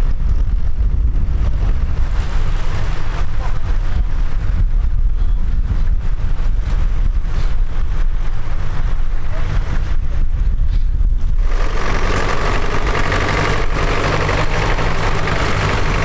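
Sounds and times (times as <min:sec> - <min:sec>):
wind buffeting microphone: 0:00.0 - 0:16.0
tractor engines running: 0:11.2 - 0:16.0.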